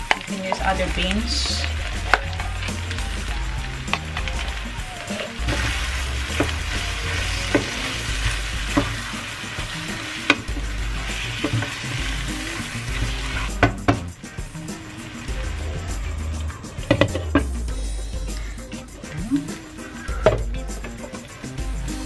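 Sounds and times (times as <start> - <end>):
meat sizzling in a frying pan: 0.0 - 17.3.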